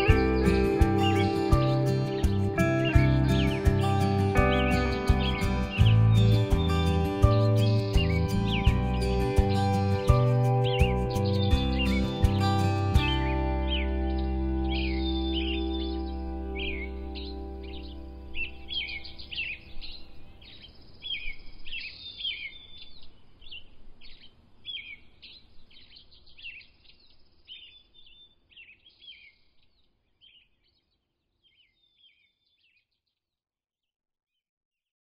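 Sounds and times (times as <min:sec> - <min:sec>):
background music: 0:00.0 - 0:19.9
songbirds chirping: 0:00.0 - 0:33.2.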